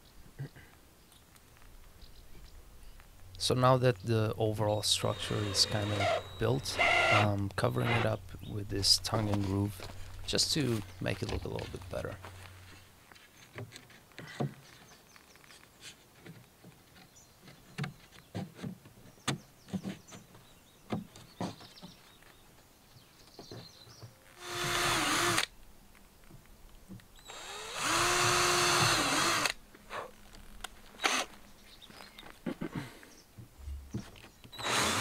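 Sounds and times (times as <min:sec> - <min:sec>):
cordless drill driving screws: 0:04.9 - 0:08.1, 0:24.4 - 0:25.5, 0:27.2 - 0:29.6, 0:31.0 - 0:31.3, 0:34.5 - 0:35.0
knocks and clicks of boards and tools: 0:13.4 - 0:14.9, 0:16.2 - 0:22.0.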